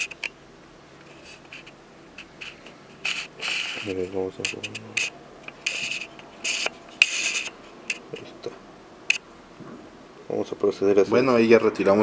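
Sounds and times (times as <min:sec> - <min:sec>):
metal tool scraping: 0:01.1 - 0:08.2.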